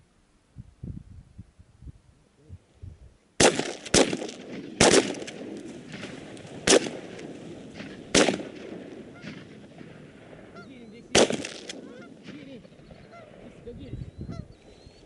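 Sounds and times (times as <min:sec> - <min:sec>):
shotgun shots with echo: 0:03.4 - 0:12.6.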